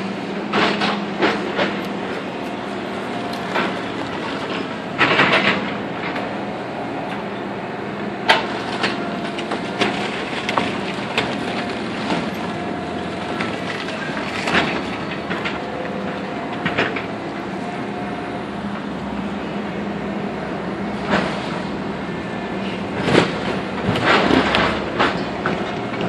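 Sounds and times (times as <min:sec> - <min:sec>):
excavator diesel engine running: 0:00.0 - 0:26.0
wood cracking and splintering: 0:00.5 - 0:06.2, 0:08.3 - 0:17.1, 0:23.0 - 0:26.0
falling debris: 0:08.4 - 0:15.6.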